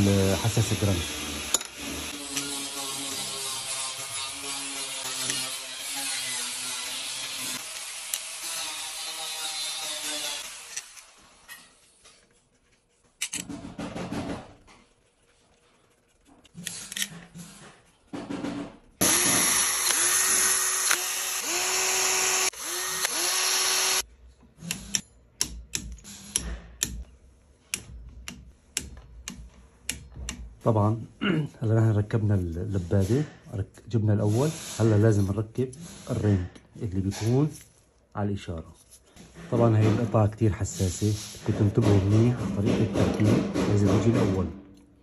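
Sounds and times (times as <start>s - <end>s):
cordless drill running: 19.0s - 24.0s.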